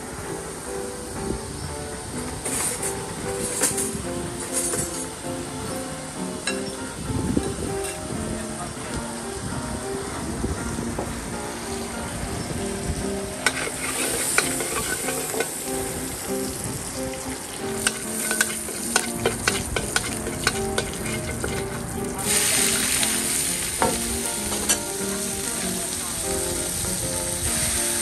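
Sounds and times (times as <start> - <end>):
loud sizzling hiss: 0.0 - 28.0
garlic frying in oil: 13.0 - 28.0
metal spatula scraping wok: 13.4 - 15.7, 17.7 - 23.2.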